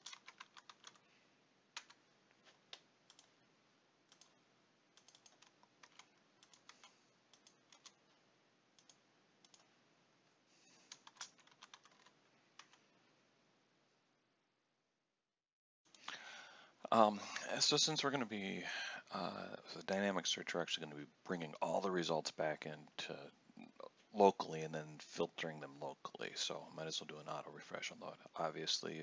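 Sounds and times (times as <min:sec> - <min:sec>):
faint keyboard typing: 0:00.0 - 0:03.4, 0:04.0 - 0:09.8, 0:10.6 - 0:12.9.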